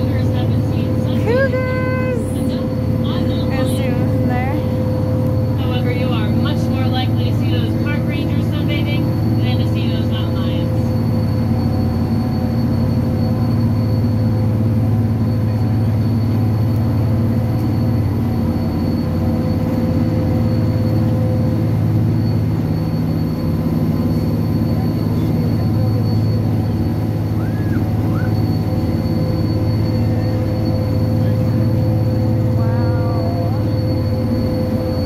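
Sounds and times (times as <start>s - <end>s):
railcar engine drone: 0.0s - 35.0s.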